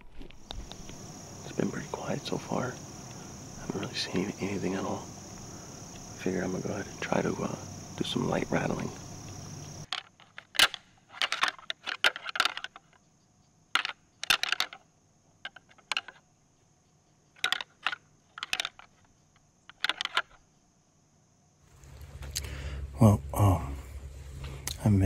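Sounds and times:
antlers rattling and clacking: 9.9s - 13.0s, 13.8s - 14.8s, 17.4s - 19.0s, 19.7s - 20.4s.

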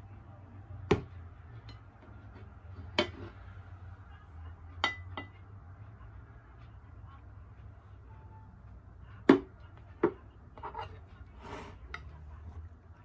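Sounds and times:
glass dishes clinking on a table: 2.9s - 3.3s, 4.8s - 5.4s.

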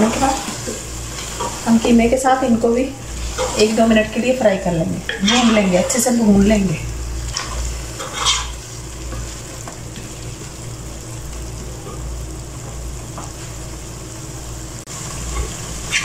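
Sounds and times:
food sizzling: 0.0s - 16.0s
wooden spatula scraping pot: 5.1s - 6.2s, 7.4s - 8.6s.

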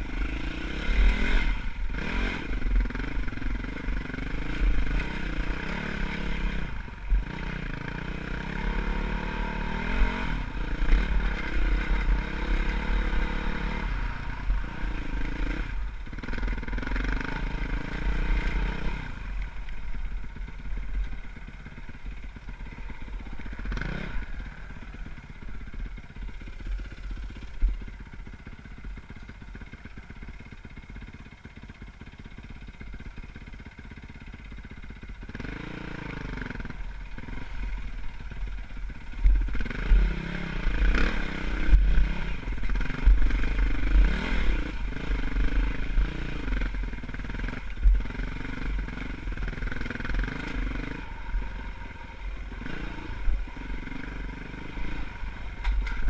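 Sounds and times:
dirt bike engine revving: 0.0s - 28.1s, 35.2s - 56.0s.

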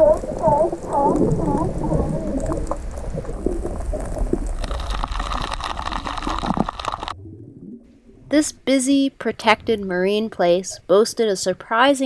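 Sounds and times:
small clicks and crackles: 0.0s - 7.2s
low rumble: 0.0s - 8.4s
muffled underwater water noise: 0.0s - 8.8s.

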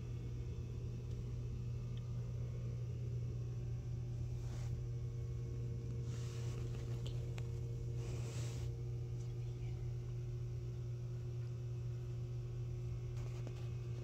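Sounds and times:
steady low hum: 0.0s - 14.0s
short rustles: 6.0s - 8.8s.

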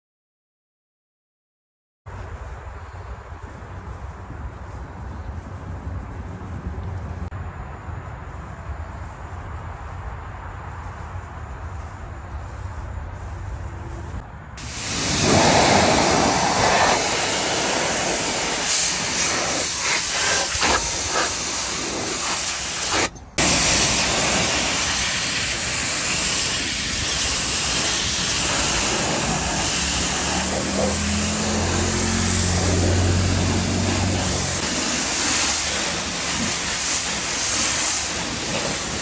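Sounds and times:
pressure washer jet spraying metal: 14.6s - 39.0s.

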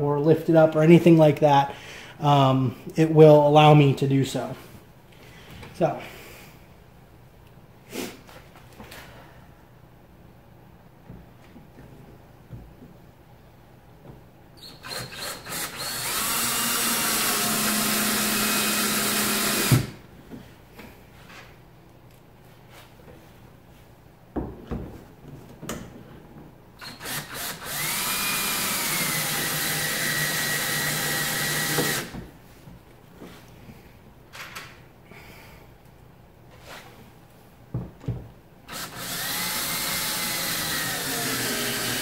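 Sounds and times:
cordless drill driving screws: 14.7s - 20.0s, 26.8s - 32.1s, 38.7s - 42.0s.

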